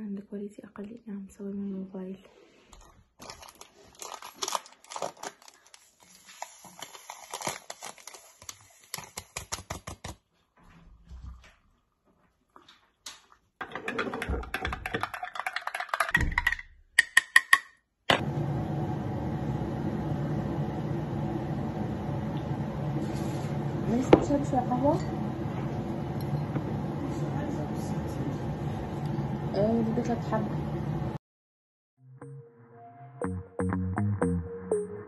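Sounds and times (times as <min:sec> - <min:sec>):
steady hum: 0:18.1 - 0:31.2.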